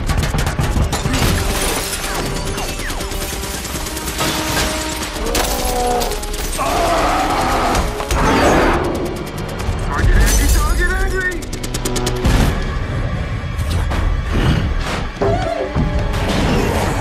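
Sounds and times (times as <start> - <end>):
film music score: 0.0 - 17.0
debris and glass crashing: 0.3 - 6.9.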